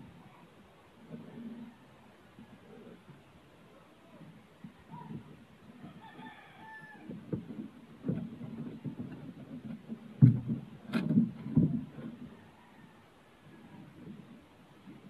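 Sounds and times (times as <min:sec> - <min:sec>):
rooster crowing: 0:05.8 - 0:07.2, 0:12.3 - 0:13.2
hands knocking and rustling: 0:07.0 - 0:12.4.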